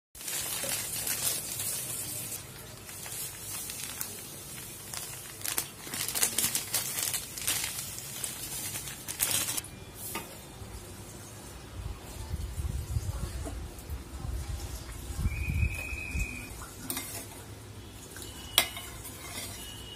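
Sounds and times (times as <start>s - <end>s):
plastic packet crinkling: 0.2s - 9.7s.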